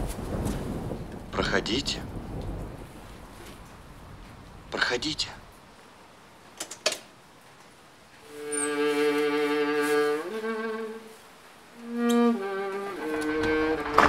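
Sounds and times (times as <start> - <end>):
violin and cello film score: 8.2 - 14.0.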